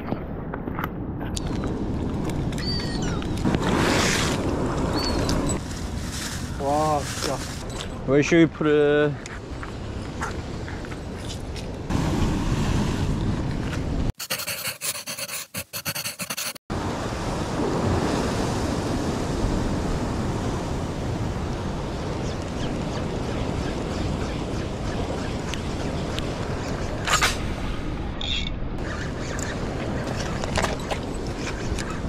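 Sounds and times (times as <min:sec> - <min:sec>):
ocean waves breaking on rocks: 0:16.7 - 0:24.6.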